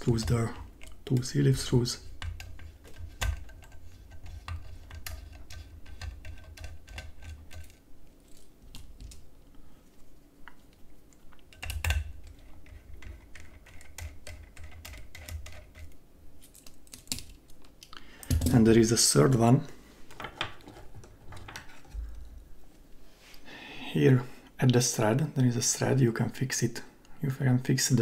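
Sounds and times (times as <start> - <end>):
screwdriver clicks and rattles: 11.5 - 17.6.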